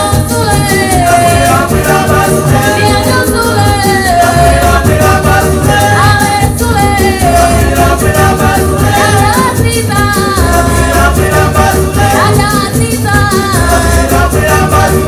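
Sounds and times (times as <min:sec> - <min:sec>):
drums: 0:00.0 - 0:15.0
people singing: 0:00.0 - 0:15.0
low bass pulse: 0:01.0 - 0:09.4.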